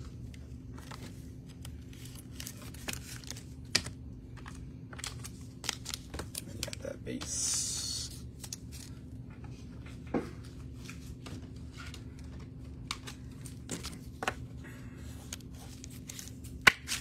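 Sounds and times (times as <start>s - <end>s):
low room hum: 0.0s - 17.0s
cards tapping and clicking: 15.2s - 17.0s.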